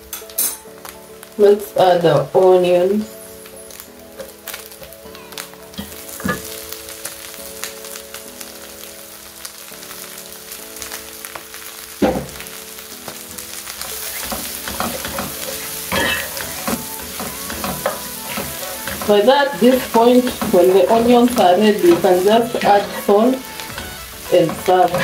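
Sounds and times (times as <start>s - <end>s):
food sizzling in hot oil: 0.0s - 25.0s
spatula scraping a pan: 13.8s - 25.0s.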